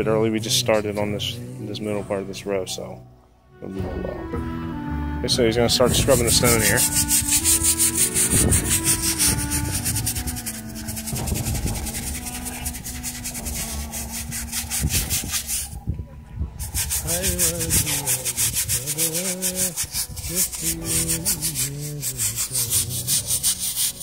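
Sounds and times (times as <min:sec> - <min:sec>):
scrub brush scrubbing stone: 0:05.9 - 0:15.9, 0:16.6 - 0:24.0.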